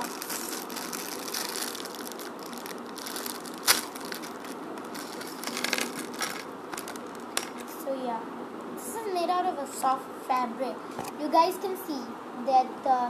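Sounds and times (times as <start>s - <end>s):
plastic bag crinkling and rustling: 0.0s - 7.8s.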